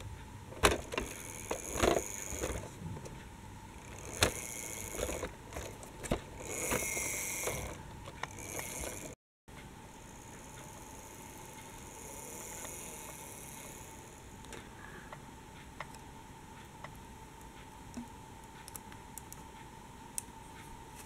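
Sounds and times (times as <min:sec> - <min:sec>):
toy bus clicking and scraping on track: 0:00.5 - 0:02.7, 0:03.8 - 0:09.2, 0:10.1 - 0:14.6.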